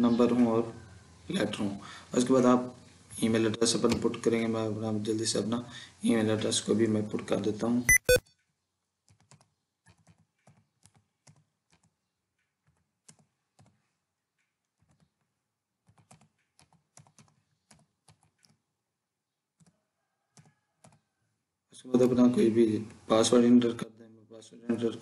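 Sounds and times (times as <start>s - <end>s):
faint keyboard typing: 7.9s - 18.8s, 19.6s - 21.2s.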